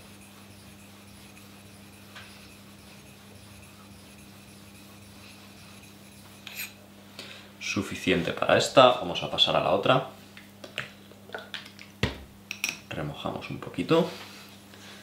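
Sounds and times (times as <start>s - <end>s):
blade rubbing on wet whetstone: 0.0s - 6.8s.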